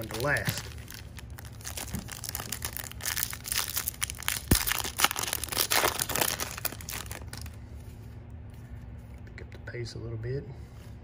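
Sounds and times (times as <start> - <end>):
wrapper tearing and crinkling: 0.0 - 7.6.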